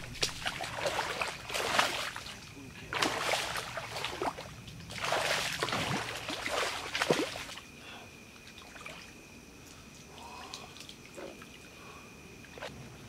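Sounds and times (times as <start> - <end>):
fish thrashing in shallow water: 0.0 - 7.7.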